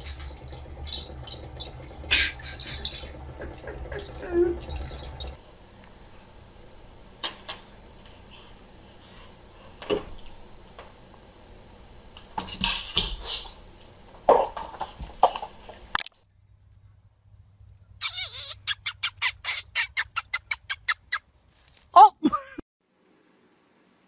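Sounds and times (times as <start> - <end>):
steady high-pitched hiss: 5.4 - 16.0.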